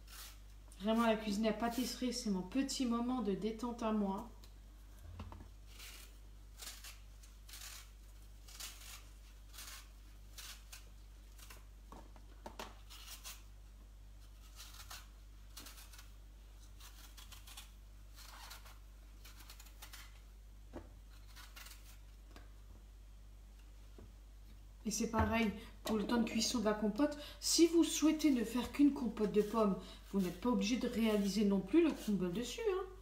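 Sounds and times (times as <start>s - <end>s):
peeler scraping apple skin: 0.0s - 0.6s, 5.6s - 11.7s, 12.8s - 13.5s, 14.2s - 20.3s, 21.1s - 22.2s.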